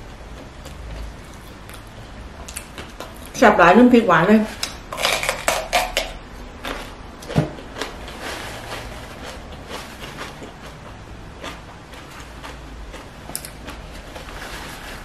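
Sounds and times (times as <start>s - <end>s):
bell pepper crunching: 0.3s - 3.4s, 4.6s - 15.0s
soft chewing: 6.6s - 15.0s.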